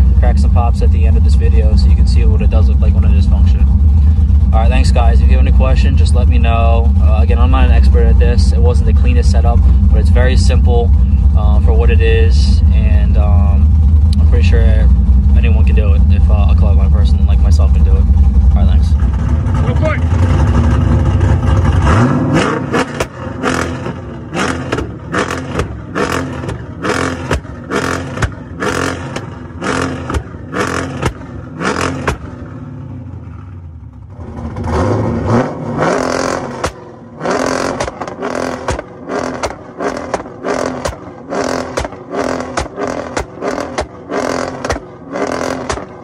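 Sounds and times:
exhaust pops and crackles: 0.0 - 32.4, 35.9 - 46.0
engine revving: 0.0 - 46.0.

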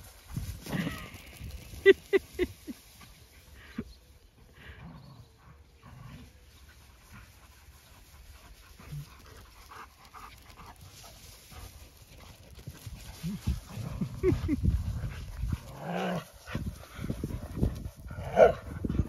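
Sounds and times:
dogs panting: 5.4 - 19.0.

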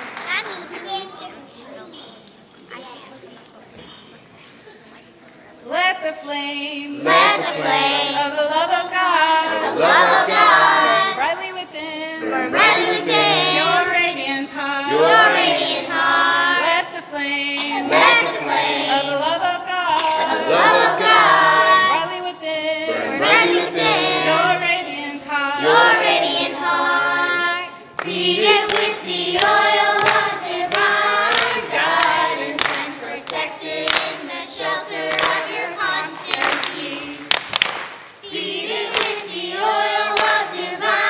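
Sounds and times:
sharp hand claps: 0.0 - 0.7, 28.0 - 34.2, 35.1 - 35.4, 36.3 - 38.2, 38.9 - 39.3, 40.1 - 41.0
children's choir singing: 6.4 - 37.5, 38.2 - 41.0.

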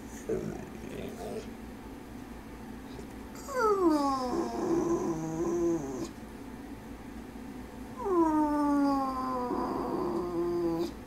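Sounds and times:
dog whining: 0.2 - 1.5, 3.4 - 6.2, 8.0 - 11.0.

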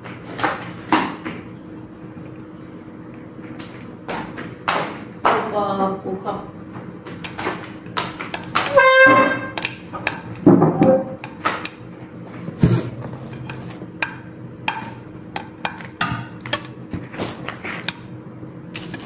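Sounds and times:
tableware clicking and knocking: 8.2 - 11.6.

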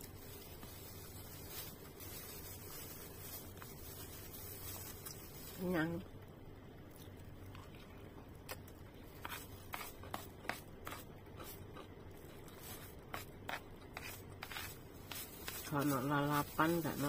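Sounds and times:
plastic spoon scraping container: 12.5 - 17.0.

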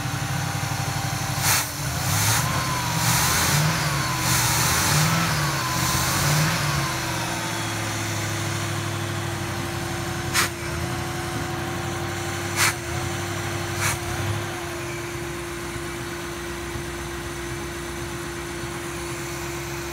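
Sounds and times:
car engine fast idle: 0.0 - 19.9.

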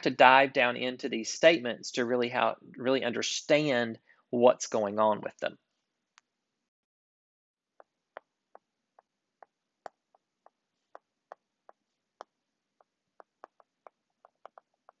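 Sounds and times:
stylus clicking on tablet screen: 7.8 - 15.0.

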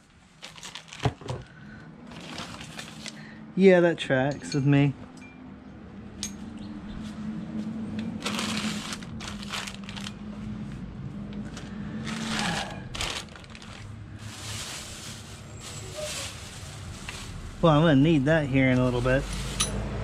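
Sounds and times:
plastic bags rustling: 0.0 - 3.3, 8.1 - 10.7, 11.3 - 18.0.

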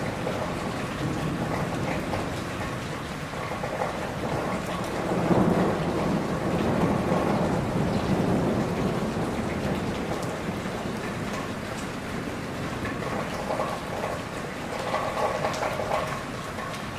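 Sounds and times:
low rumble of thunder: 0.0 - 16.4
steady rain: 0.0 - 16.9.

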